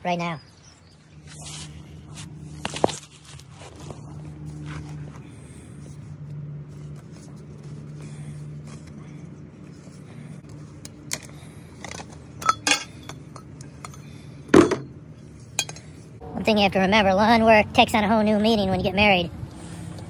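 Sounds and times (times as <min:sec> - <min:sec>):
metal parts clinking and knocking: 0:11.1 - 0:14.0, 0:15.6 - 0:15.9.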